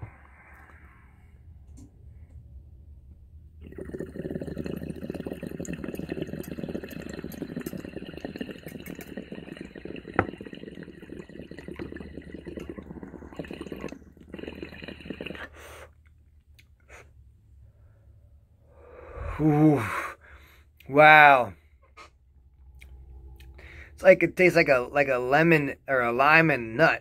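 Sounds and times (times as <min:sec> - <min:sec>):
water bubbling through glass pipe: 0:03.6 - 0:15.5.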